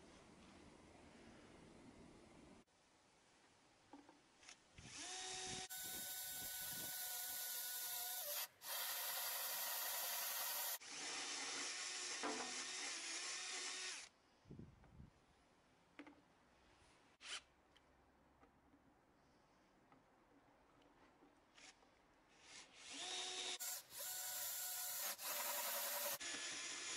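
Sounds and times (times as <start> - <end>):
drill cutting through wood: 4.8 - 14.1, 22.4 - 26.9.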